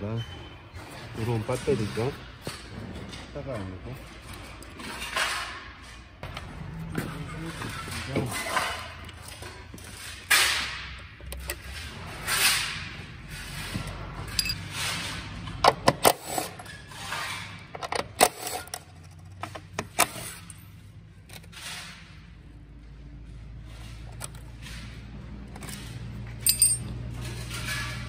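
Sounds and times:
sharp metallic clicks and clinks: 14.3s - 14.6s, 25.6s - 27.7s.

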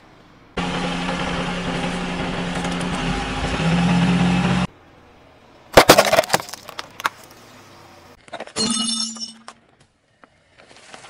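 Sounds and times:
car engine running: 0.4s - 4.7s
plastic lighters crushed by tyre: 5.7s - 7.3s.

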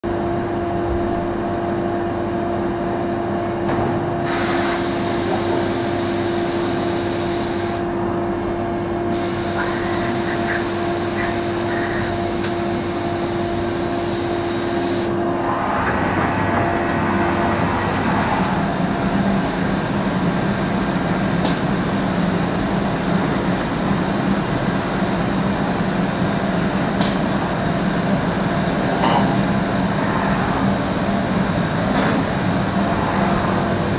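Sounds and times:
machining centre mechanical drone: 0.0s - 33.9s
hiss: 4.3s - 7.8s, 9.1s - 15.1s
low hum: 15.0s - 21.0s, 26.8s - 33.9s.

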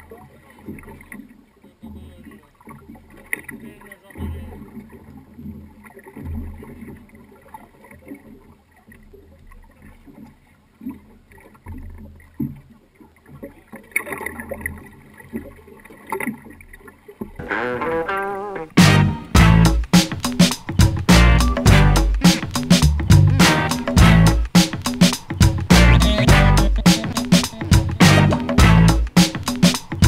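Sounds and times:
water around fishing boat: 0.0s - 18.8s, 19.8s - 30.0s
music: 17.4s - 30.0s
dull low thumps: 18.7s - 19.9s, 20.7s - 24.6s, 25.3s - 29.2s.

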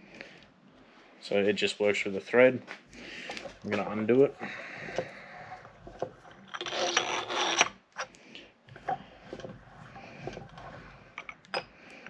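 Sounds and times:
hose fitting rasping rub: 3.2s - 12.0s.

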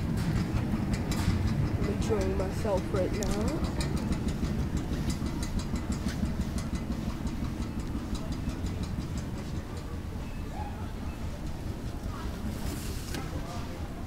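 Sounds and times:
cart rolling across floor: 0.0s - 9.9s
cart clicks and rattles: 0.0s - 13.7s.

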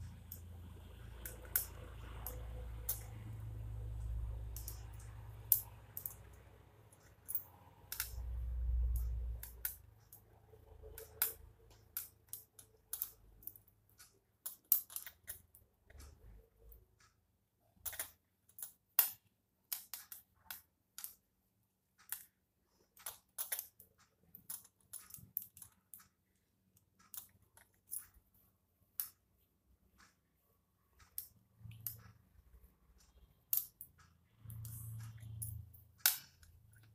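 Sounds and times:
knitting needles tapping: 0.0s - 36.9s.

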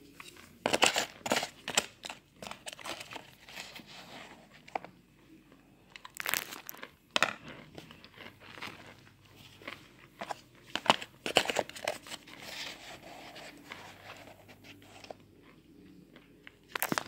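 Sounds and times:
powder crunching and squeaking: 6.0s - 17.0s.

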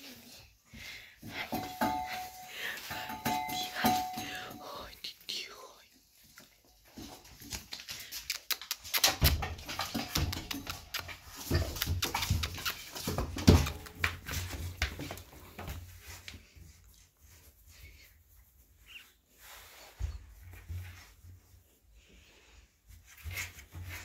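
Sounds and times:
rustling clicks and bumps of handling: 6.2s - 17.7s.

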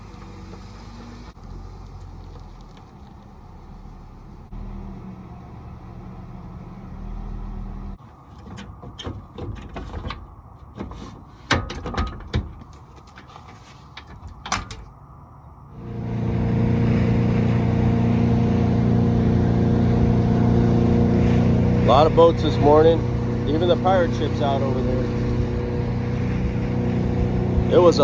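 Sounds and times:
boat engine running: 15.7s - 28.0s.

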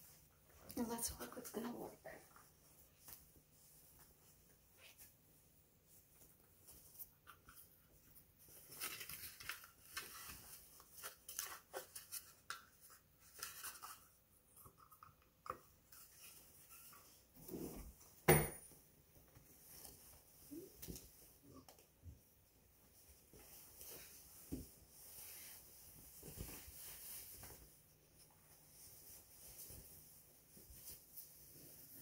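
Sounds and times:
coat rustling and scraping: 22.8s - 32.0s.

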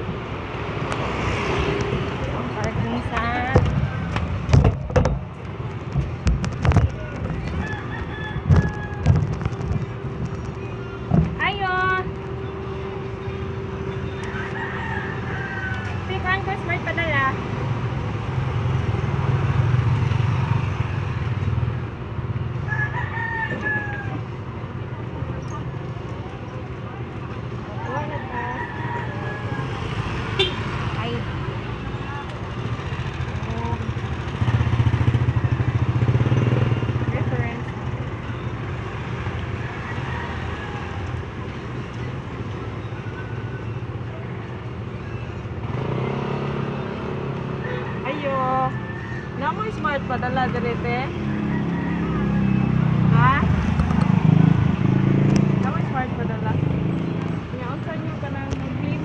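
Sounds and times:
street noise: 0.0s - 59.0s
vehicle engine hum: 0.0s - 59.0s
wind and road noise: 0.0s - 59.0s
rooster crowing: 7.4s - 9.4s, 14.2s - 16.1s, 22.6s - 24.3s, 28.0s - 30.1s, 39.5s - 41.4s, 47.4s - 49.6s, 51.2s - 53.0s.

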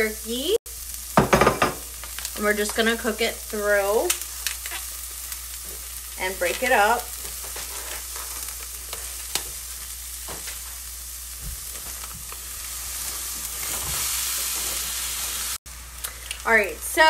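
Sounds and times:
onion sizzling in a pan: 0.0s - 17.0s
sharp crackles: 1.9s - 10.9s.

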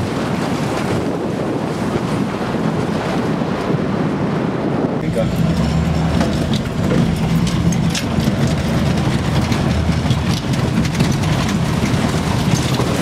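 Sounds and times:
off-road vehicle engine: 4.8s - 13.0s
rattles and knocks: 5.0s - 13.0s.

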